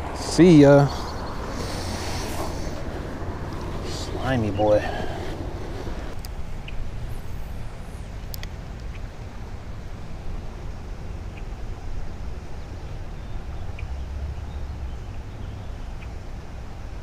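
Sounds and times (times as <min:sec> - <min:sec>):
wind buffeting microphone: 0:00.0 - 0:10.5.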